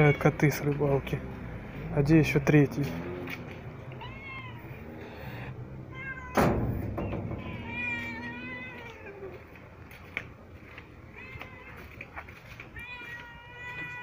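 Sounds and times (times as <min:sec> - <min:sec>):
cat meowing: 0:03.8 - 0:06.5, 0:07.1 - 0:09.6, 0:11.0 - 0:14.0
sharp thump: 0:06.3 - 0:08.0.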